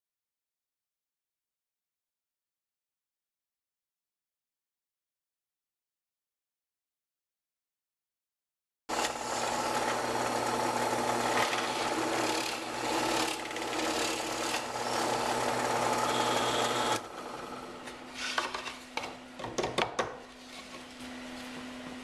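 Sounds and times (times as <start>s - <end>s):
drill bit boring through plywood: 8.9s - 17.8s
drill press motor hum: 8.9s - 18.0s.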